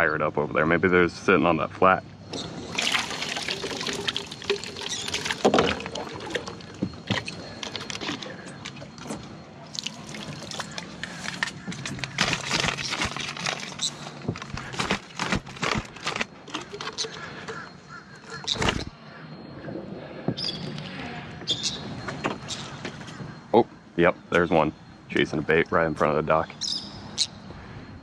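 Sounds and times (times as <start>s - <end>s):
water splashing and dripping: 2.7s - 8.1s, 9.7s - 11.4s.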